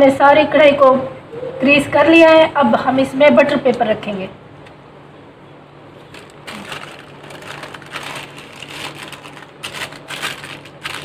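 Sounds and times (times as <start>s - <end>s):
paper crinkling and rustling: 6.0s - 11.0s.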